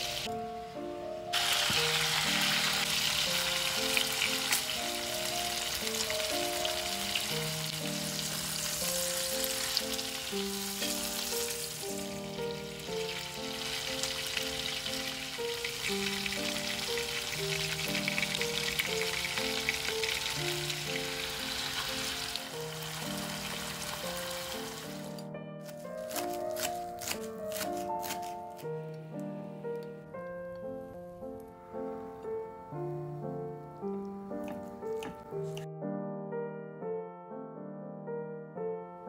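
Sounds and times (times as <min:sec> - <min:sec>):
chicken sizzling in a pan: 0:00.0 - 0:00.3, 0:01.4 - 0:25.2
soft background music: 0:00.0 - 0:39.0.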